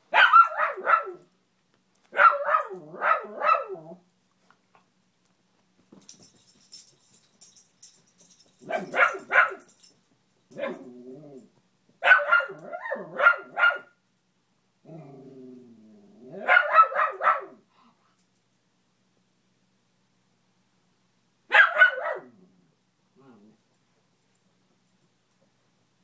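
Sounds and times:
dog barking: 0:00.1 - 0:01.3, 0:02.1 - 0:03.8, 0:08.6 - 0:09.7, 0:12.0 - 0:14.0, 0:16.4 - 0:17.6, 0:21.5 - 0:22.4
dog growling: 0:10.7 - 0:11.5, 0:14.8 - 0:16.5, 0:22.3 - 0:23.6.

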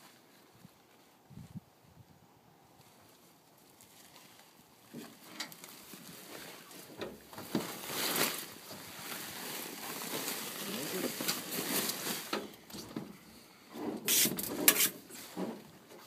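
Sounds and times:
plastic tarp rustling and crackling: 0:00.0 - 0:01.6, 0:02.8 - 0:13.2, 0:13.9 - 0:16.0.

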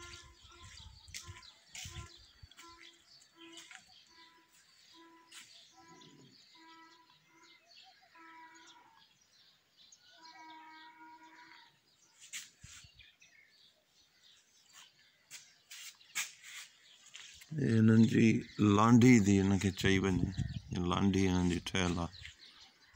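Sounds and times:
faint animal calls: 0:10.1 - 0:11.8.

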